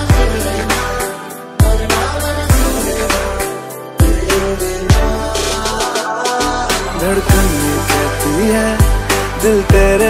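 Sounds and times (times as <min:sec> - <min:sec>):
song with singing over a beat: 0:00.0 - 0:10.0
deep bass notes dropping: 0:06.5 - 0:10.0.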